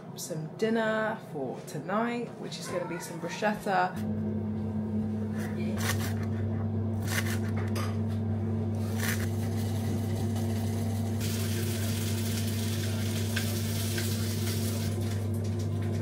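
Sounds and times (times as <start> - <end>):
steady low hum: 3.6 - 16.0
knife on plastic chopping board: 7.0 - 7.7.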